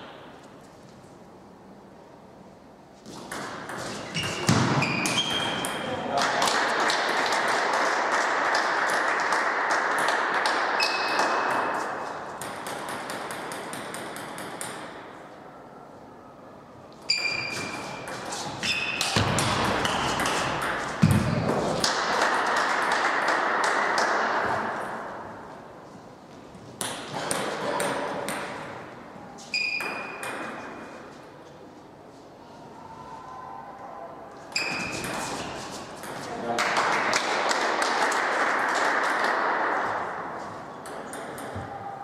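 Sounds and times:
table tennis balls clicking: 12.4s - 15.0s.

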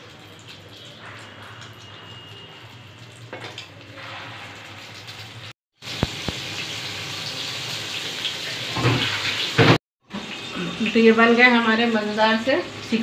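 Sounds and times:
meat sizzling in hot oil: 4.7s - 13.0s.

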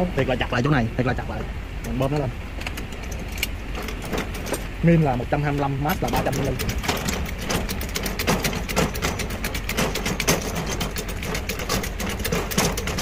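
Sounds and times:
hydraulic jack pump clicking: 5.6s - 13.0s.

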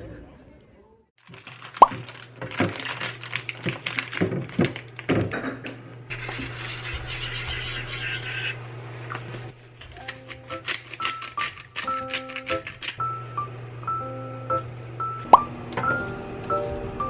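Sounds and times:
objects being handled: 9.2s - 13.0s.

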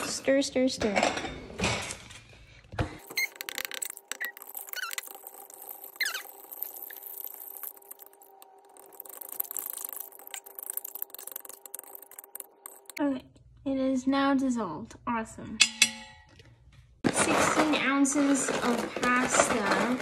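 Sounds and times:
short high squeaks: 3.0s - 7.4s
fork scraping metal pot: 3.0s - 13.0s.

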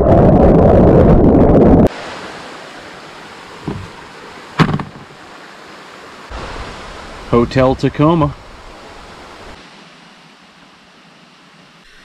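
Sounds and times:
steady outdoor hiss: 1.9s - 12.0s
short knocks: 3.6s - 4.0s, 4.6s - 5.2s.

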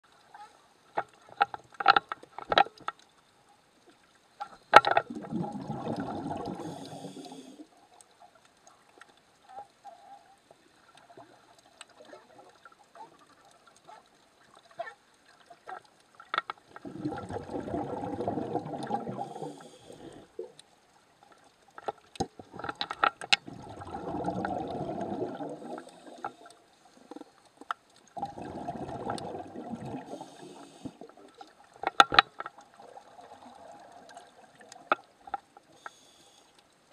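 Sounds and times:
sharp clicks and pops: 0.9s - 3.2s, 4.4s - 5.7s, 15.6s - 19.1s, 21.3s - 23.5s, 31.3s - 32.7s, 34.1s - 36.6s
diver exhaling bubbles underwater: 5.0s - 7.6s, 16.8s - 20.5s, 23.4s - 26.5s, 28.2s - 31.4s.

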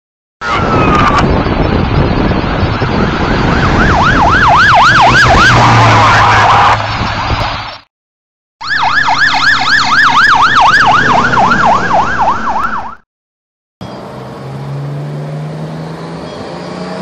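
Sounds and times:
fire engine siren yelping: 0.4s - 7.8s, 8.6s - 13.0s
vehicle engine drone: 0.4s - 7.9s, 8.8s - 12.9s, 13.8s - 17.0s.

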